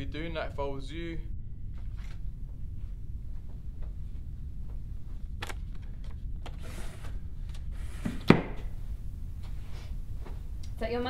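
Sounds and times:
low room rumble: 0:00.0 - 0:11.0.

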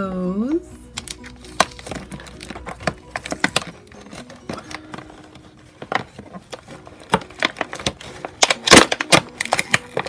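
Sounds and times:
fingernails picking tape on plastic: 0:07.1 - 0:10.0.

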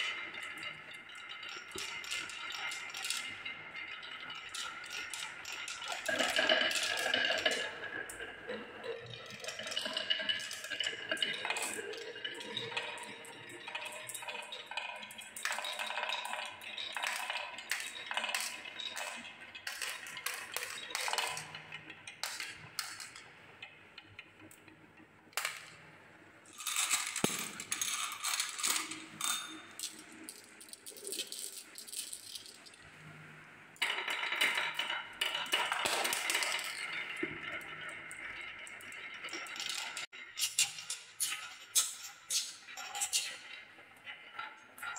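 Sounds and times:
marbles clattering down wooden tracks: 0:00.0 - 0:24.6, 0:25.4 - 0:25.9, 0:26.5 - 0:32.9, 0:33.8 - 0:43.5.

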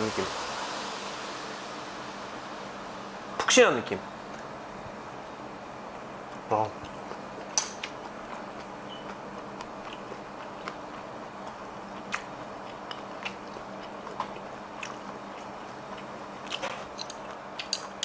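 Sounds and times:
person chewing crunchy food: 0:06.8 - 0:17.7.

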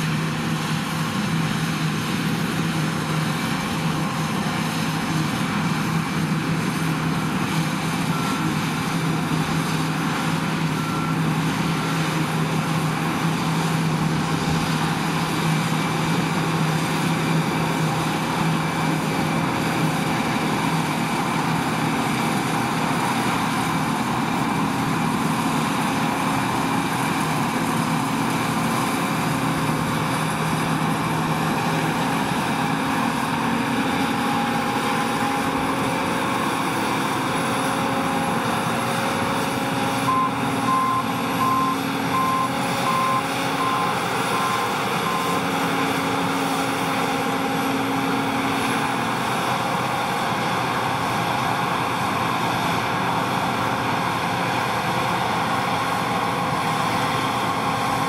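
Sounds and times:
combine harvester machinery drone: 0:00.0 - 0:58.0
short beeps: 0:40.1 - 0:45.5.

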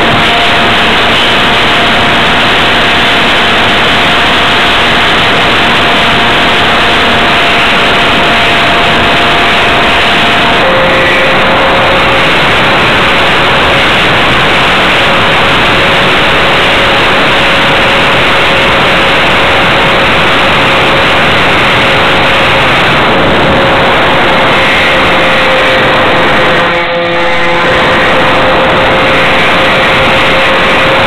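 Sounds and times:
electric motors and propellers whining: 0:00.0 - 0:31.0.

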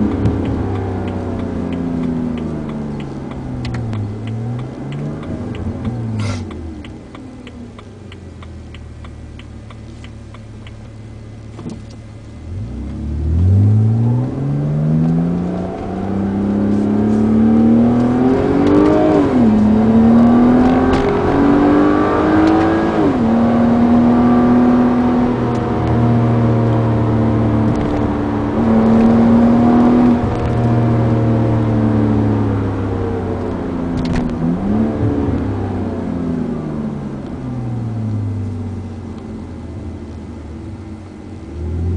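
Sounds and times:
light regular ticking: 0:00.0 - 0:13.0
car engine revving: 0:00.0 - 0:41.9.

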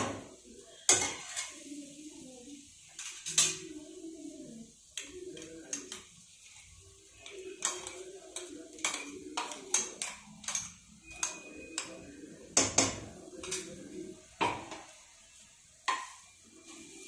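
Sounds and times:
metal spoon clinking on bowl: 0:07.2 - 0:13.7.

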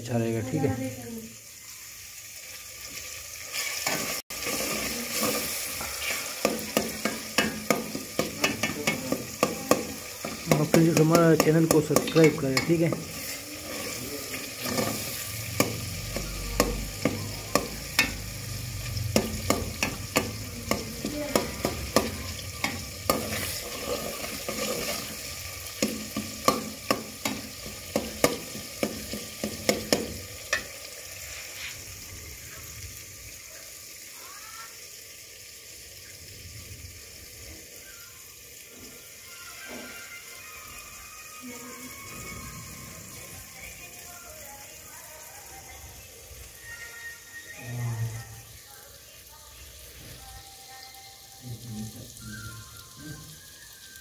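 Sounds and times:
masala sizzling: 0:00.0 - 0:54.0
spoon scraping and knocking pot: 0:06.4 - 0:14.0.

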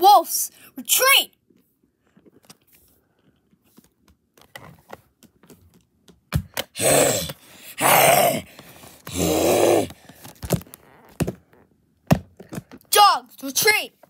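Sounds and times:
person making growling noises: 0:06.7 - 0:10.0.

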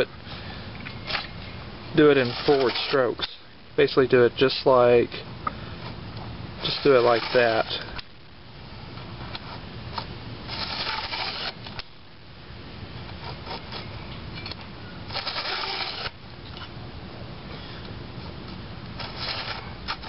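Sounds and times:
file rasping on chainsaw chain: 0:02.1 - 0:03.1, 0:15.1 - 0:16.1.

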